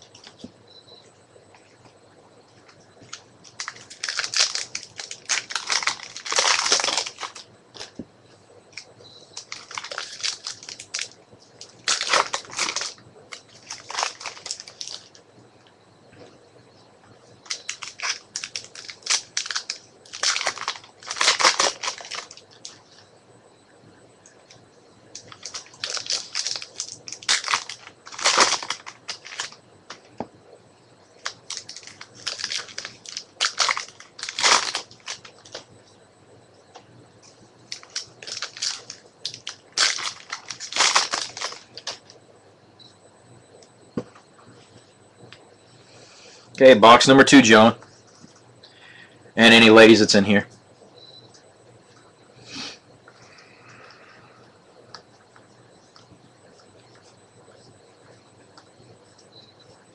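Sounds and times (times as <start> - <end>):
cards rustling: 3.0 - 8.0, 8.8 - 15.1, 17.4 - 22.8, 25.2 - 29.6, 37.7 - 42.0
foil wrappers crinkling: 3.0 - 8.0, 8.7 - 15.2, 17.4 - 23.0, 25.1 - 30.0, 31.2 - 35.6, 37.6 - 42.2.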